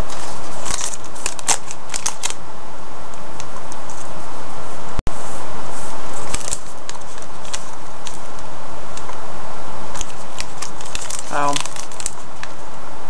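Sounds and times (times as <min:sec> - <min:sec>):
handling clicks and crackles: 0:00.0 - 0:02.4, 0:06.2 - 0:08.4, 0:09.9 - 0:12.6
steady hiss: 0:00.0 - 0:13.0.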